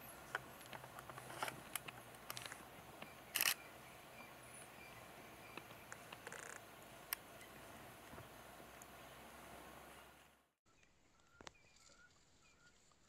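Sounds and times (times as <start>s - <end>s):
camera shutter clicking: 3.3s - 3.6s.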